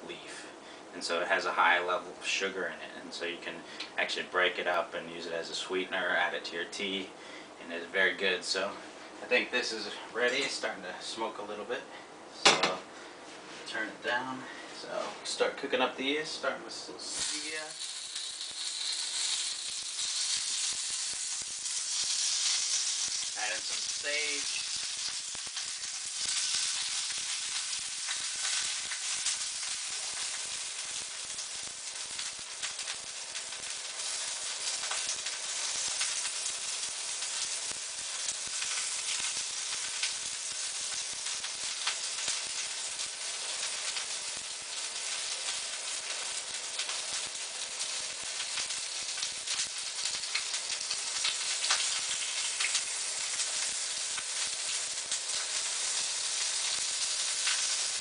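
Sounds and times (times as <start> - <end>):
leaves sizzling in oil: 17.0 - 58.0.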